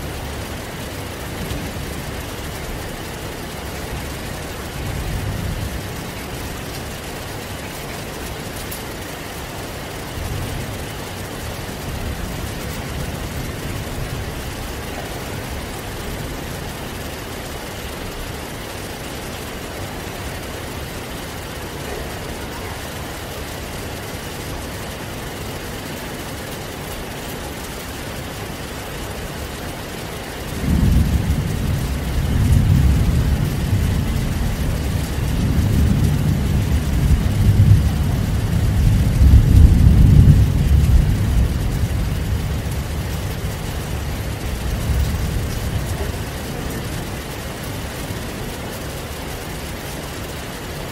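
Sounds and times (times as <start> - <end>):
heavy rain: 0.0 - 50.9
rolling thunder: 10.0 - 24.9, 30.2 - 50.4.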